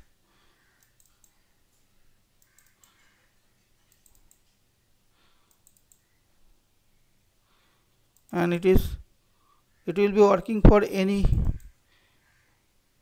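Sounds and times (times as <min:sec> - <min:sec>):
faint computer mouse clicks: 0:00.6 - 0:03.2, 0:03.8 - 0:04.6, 0:05.4 - 0:06.2, 0:08.1 - 0:08.4.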